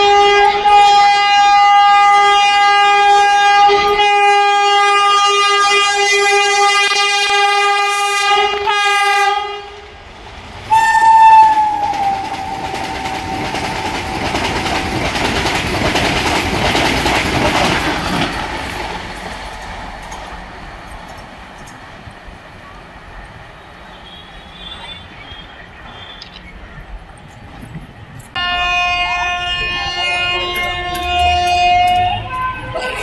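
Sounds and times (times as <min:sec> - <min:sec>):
train horn blast: 0:00.0 - 0:09.9, 0:10.7 - 0:14.1, 0:28.3 - 0:33.0
fast train rushing past: 0:00.0 - 0:33.0.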